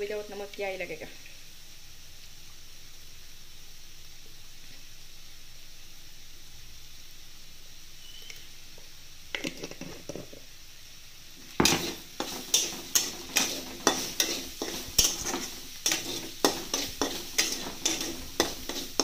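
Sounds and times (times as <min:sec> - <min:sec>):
frying sizzle: 0:00.0 - 0:19.0
metal spatula scraping pan: 0:11.6 - 0:19.0.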